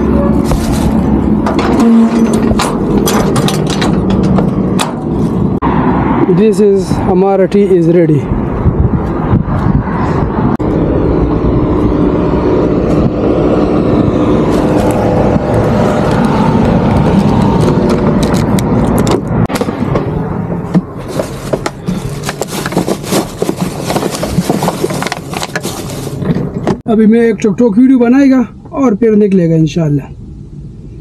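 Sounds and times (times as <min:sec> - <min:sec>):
objects being moved about: 0:00.0 - 0:05.6, 0:20.7 - 0:26.8
truck engine running: 0:00.0 - 0:05.7, 0:10.5 - 0:26.8
door opening: 0:00.1 - 0:05.2.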